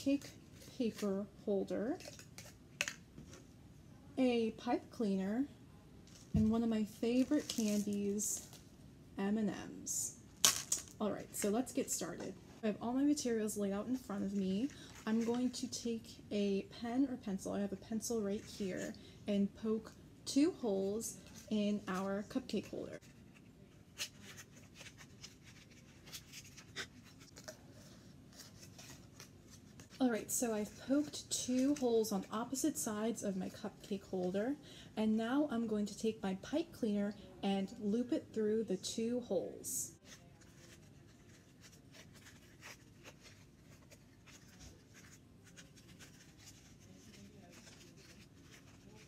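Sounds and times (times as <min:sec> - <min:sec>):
foil cupcake liner crinkling: 0:07.1 - 0:08.6, 0:21.1 - 0:30.0, 0:40.0 - 0:49.0.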